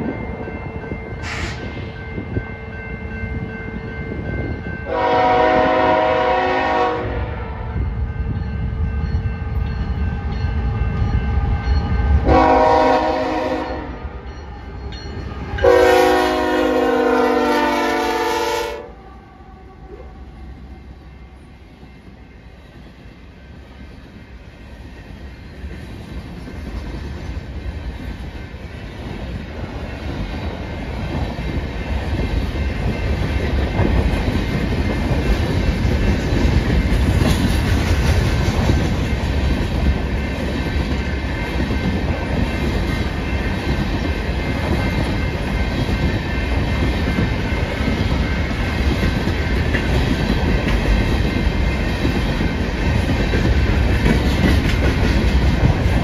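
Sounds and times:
freight cars wheel-on-rail clatter: 0.0 - 6.9, 19.9 - 56.0
locomotive engine and rail rumble: 0.0 - 56.0
train air horn blasts: 1.2 - 1.7, 4.8 - 7.8, 12.2 - 14.2, 15.6 - 20.4.

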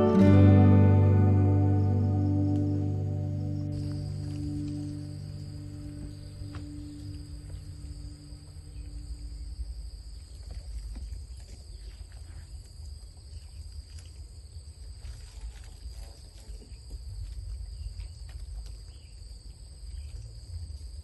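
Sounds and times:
low rumble: 0.0 - 9.9
high-pitched insect chorus: 0.0 - 10.6.

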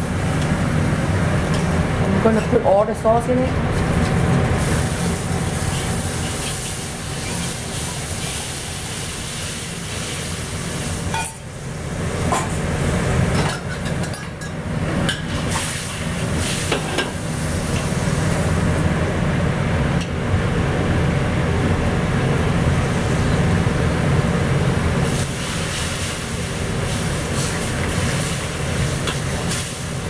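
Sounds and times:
sauce sizzling in hot wok: 4.6 - 12.0, 25.0 - 30.0.

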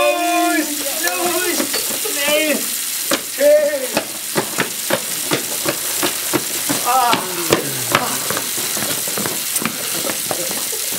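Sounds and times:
heavy rain pouring: 0.0 - 10.9.

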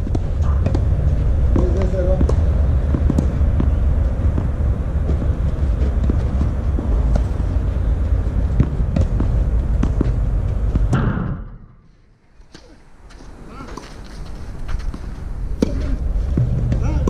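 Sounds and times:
wind buffeting microphone: 0.0 - 11.7.

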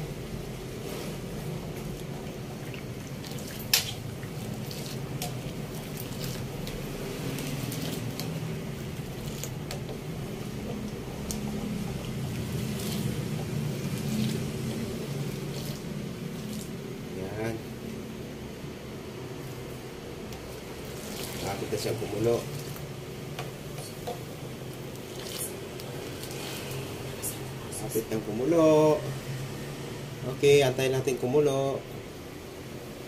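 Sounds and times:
steady low hum: 0.0 - 33.0
liquid swishing: 0.7 - 17.0, 20.5 - 23.0, 24.7 - 27.6.

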